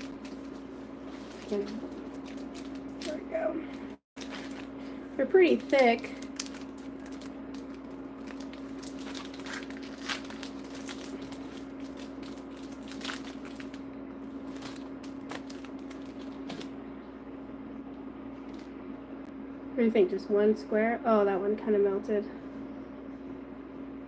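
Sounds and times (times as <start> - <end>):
steady low hum: 0.0 - 24.0
plastic wrapper crackling: 1.2 - 16.7.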